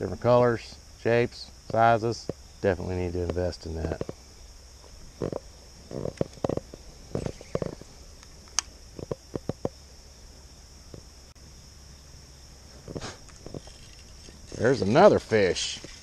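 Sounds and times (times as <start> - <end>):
high insect drone: 0.0 - 16.0
fishing reel dull thumps: 5.2 - 9.8.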